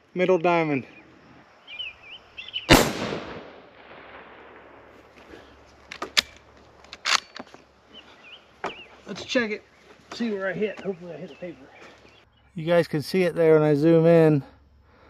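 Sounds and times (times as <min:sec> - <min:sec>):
rifle shot echoing: 0:02.7 - 0:05.4
sharp clicks: 0:05.8 - 0:07.6.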